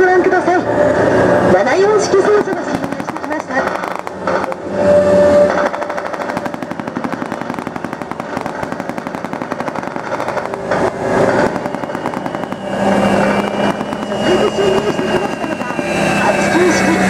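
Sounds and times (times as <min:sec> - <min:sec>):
armoured vehicle engine whine: 0:00.0 - 0:17.0
automatic gunfire: 0:02.3 - 0:04.6, 0:05.5 - 0:15.7.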